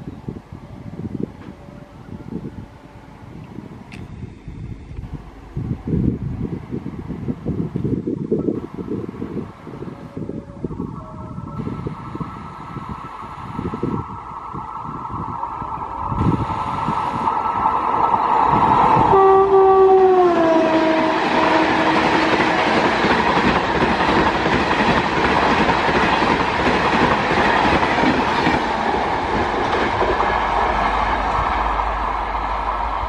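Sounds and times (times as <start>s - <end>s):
train coaches rushing on rails: 5.0s - 33.0s
locomotive horn: 19.0s - 22.6s.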